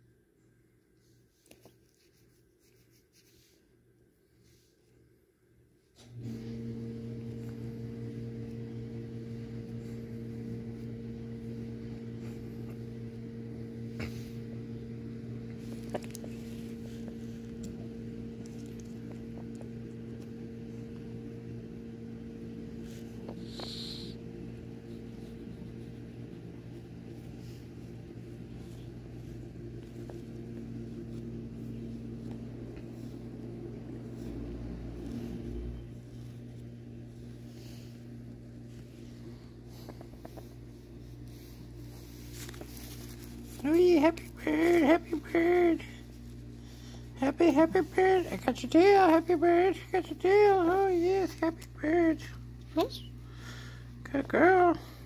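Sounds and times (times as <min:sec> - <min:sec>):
low electrical hum: 0:00.0 - 0:55.0.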